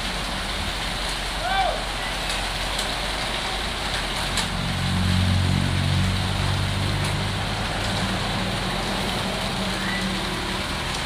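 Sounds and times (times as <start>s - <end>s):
wet concrete pouring down chute: 0.0s - 11.0s
low engine hum: 2.9s - 11.0s.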